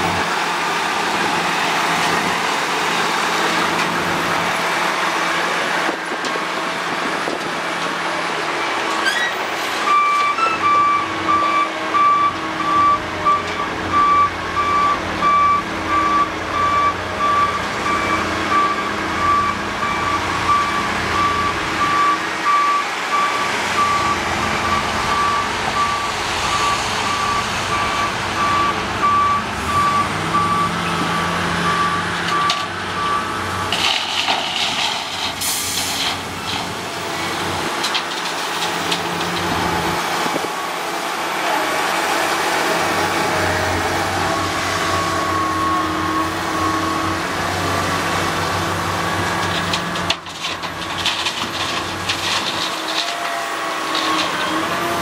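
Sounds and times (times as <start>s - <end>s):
reversing alarm beeping: 9.9s - 33.8s.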